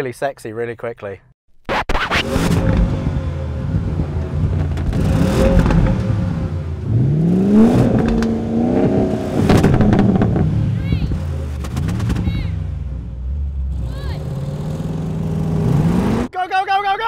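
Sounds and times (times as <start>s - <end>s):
engine revving: 1.7s - 16.3s
car engines idling: 2.6s - 15.7s.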